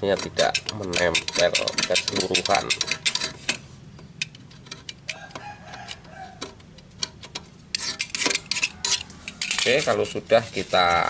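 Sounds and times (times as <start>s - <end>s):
knife blade scraping metal: 0.0s - 3.6s, 7.7s - 11.0s.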